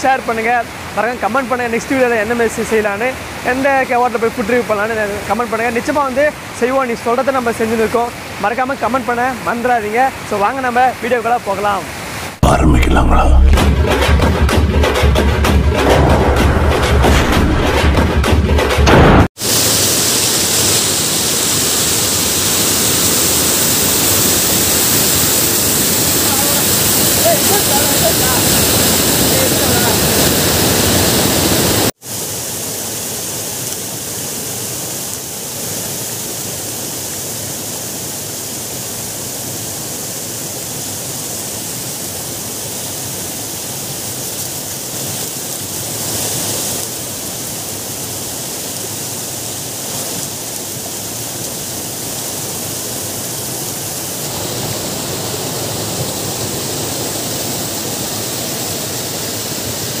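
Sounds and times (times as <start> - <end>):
water rushing over rocks: 19.4 - 60.0.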